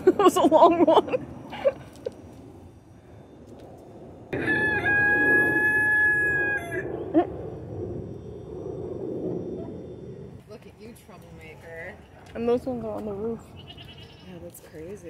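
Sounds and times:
rooster crowing: 4.3s - 6.9s.

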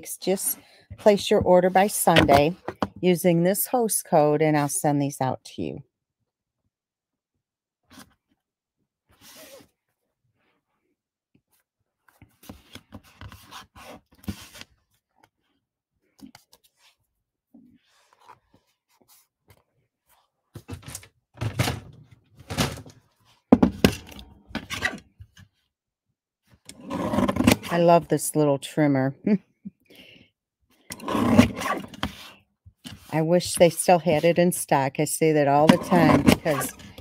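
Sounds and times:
paper trimmer knocks and scrapes: 35.6s - 37.0s.

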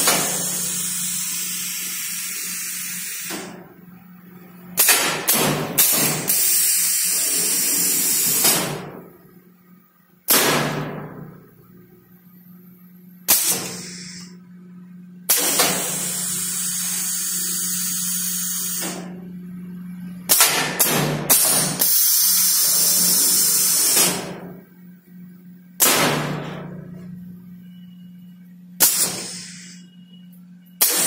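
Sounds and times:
air exhaust hissing: 0.0s - 3.7s, 4.8s - 9.0s, 13.2s - 14.4s, 15.3s - 19.1s, 21.3s - 24.4s, 28.8s - 30.0s
pneumatic cylinders clanking: 0.0s - 3.8s, 4.8s - 9.2s, 13.3s - 14.4s, 15.3s - 19.2s, 20.3s - 24.6s, 28.8s - 29.9s, 30.7s - 31.0s
steady low hum: 0.0s - 31.0s.

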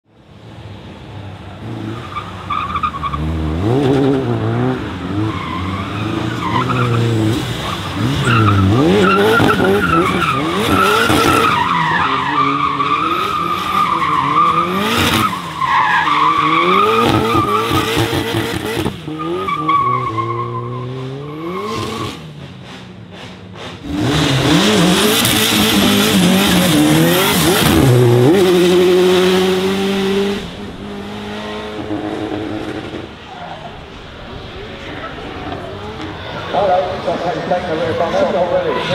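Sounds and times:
car engine revving hard: 3.1s - 15.4s, 23.8s - 33.1s.

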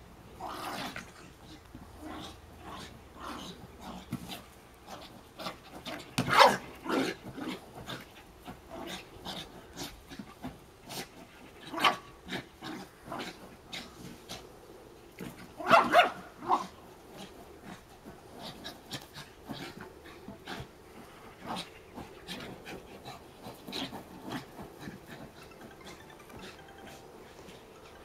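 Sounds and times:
small dog barking: 6.3s - 6.6s, 15.6s - 16.7s.

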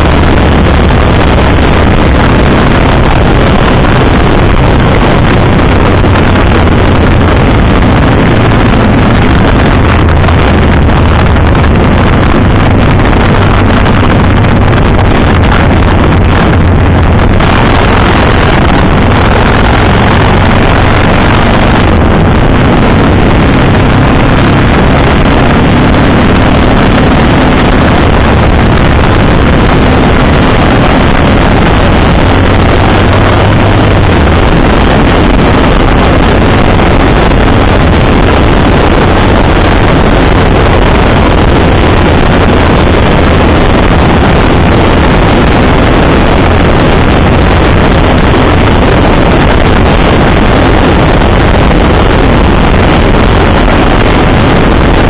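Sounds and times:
motorcycle engine running: 0.0s - 55.0s
wind rushing over microphone: 0.0s - 55.0s.

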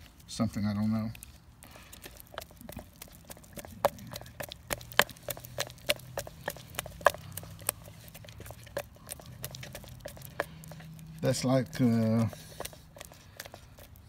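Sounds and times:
stick scraping plastic cup: 1.9s - 14.0s.

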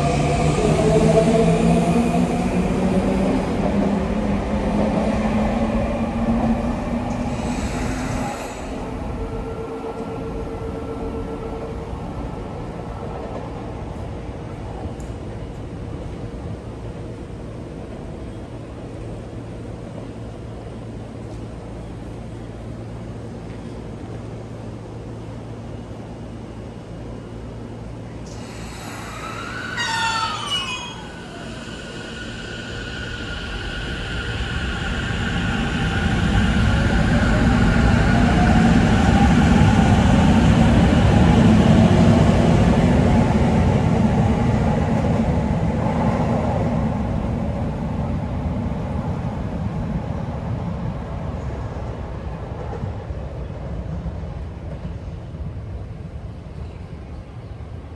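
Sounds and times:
train wheels rumbling on rails: 0.0s - 57.9s
train traction motor whine: 28.3s - 36.7s.

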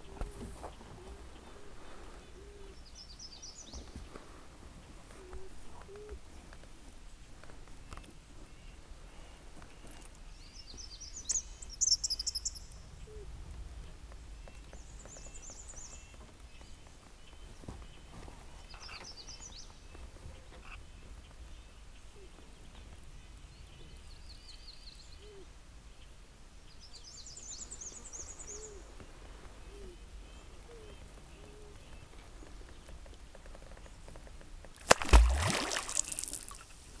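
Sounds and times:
small birds chirping faintly: 0.0s - 37.0s
beaver tail slapping water: 34.8s - 36.8s.

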